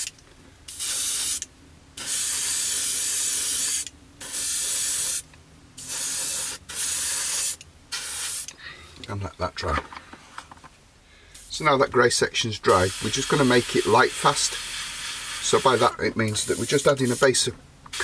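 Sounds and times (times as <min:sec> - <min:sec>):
airbrush spraying hiss: 0:00.7 - 0:08.5, 0:11.3 - 0:11.7, 0:12.7 - 0:18.0.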